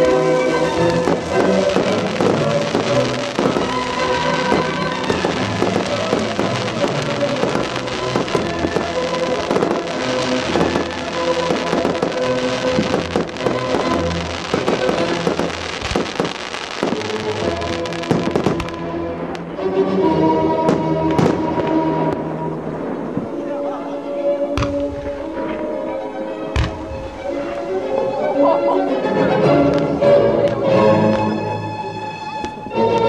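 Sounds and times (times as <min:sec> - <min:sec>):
fireworks crackling and banging: 0:00.0 - 0:19.6, 0:20.6 - 0:28.2.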